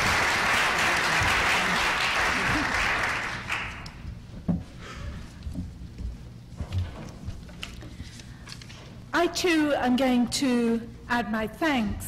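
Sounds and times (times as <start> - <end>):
audience applauding: 0.0 - 4.0.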